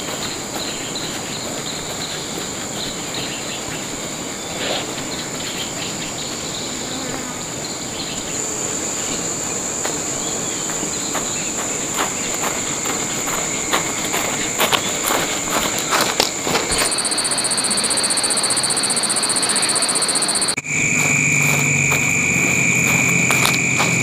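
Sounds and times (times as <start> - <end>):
high-pitched insect chirring: 8.3 - 24.0.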